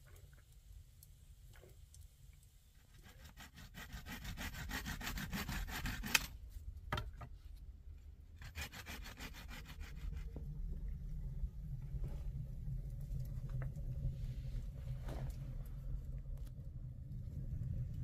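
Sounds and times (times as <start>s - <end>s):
saw cutting through wood: 3.0s - 6.3s, 8.4s - 10.1s.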